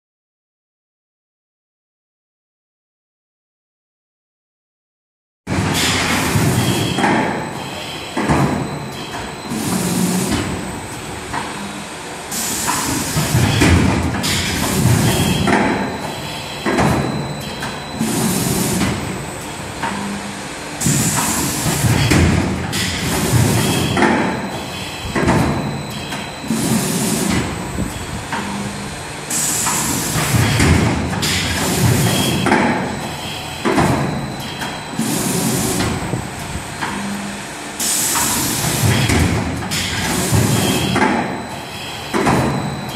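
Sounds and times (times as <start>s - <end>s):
machine parts sliding and clunking: 11.3s - 24.4s, 25.1s - 32.9s, 33.6s - 41.2s.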